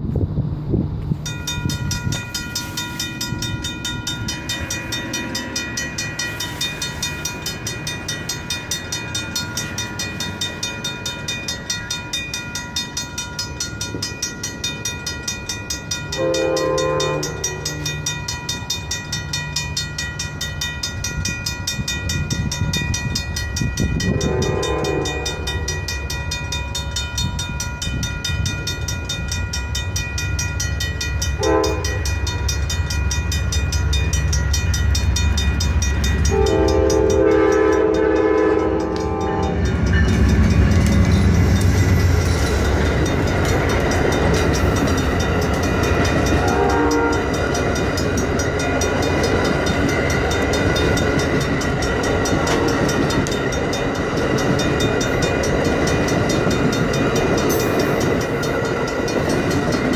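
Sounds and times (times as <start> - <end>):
locomotive engine rumble: 0.0 - 59.9
mechanical crossing bells ringing: 1.2 - 59.9
locomotive horn blasts: 16.1 - 18.0, 24.1 - 25.8, 31.4 - 32.1, 36.2 - 39.7, 46.3 - 47.4, 52.4 - 53.0.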